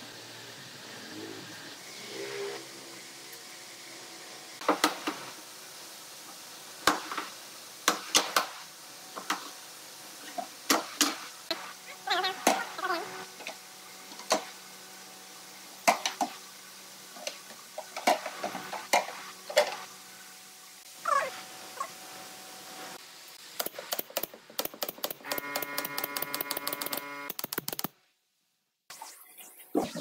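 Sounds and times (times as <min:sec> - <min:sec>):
pneumatic nailer clicks: 0:23.6 - 0:27.9.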